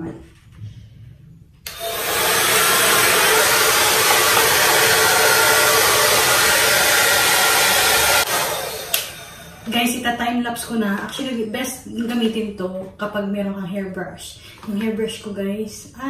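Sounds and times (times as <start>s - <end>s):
hair dryer blowing: 1.7s - 10.1s.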